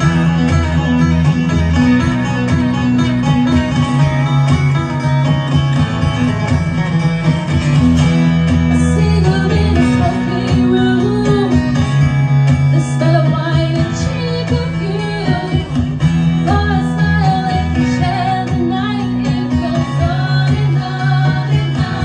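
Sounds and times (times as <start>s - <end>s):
low bass notes: 0.0s - 22.0s
strummed acoustic guitar: 0.0s - 22.0s
woman singing into microphone: 8.7s - 12.0s, 12.7s - 22.0s.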